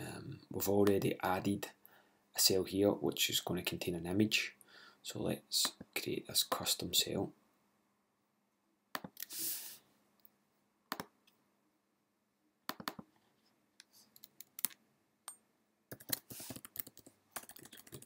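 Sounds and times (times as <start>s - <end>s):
keyboard typing: 8.9s - 9.3s, 12.7s - 13.2s, 14.1s - 14.8s, 15.9s - 18.0s
mouse clicks: 8.9s - 9.3s, 12.7s - 13.1s.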